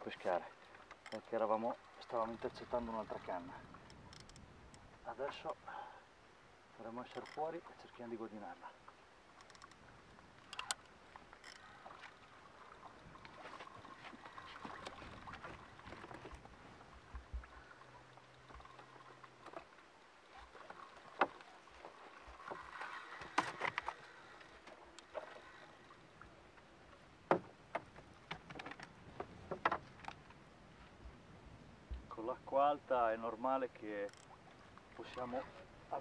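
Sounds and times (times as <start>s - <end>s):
water lapping: 0.0s - 36.0s
fishing rod and reel clicks: 0.8s - 1.3s, 3.8s - 4.9s, 7.1s - 7.5s, 9.4s - 11.8s, 34.0s - 34.4s.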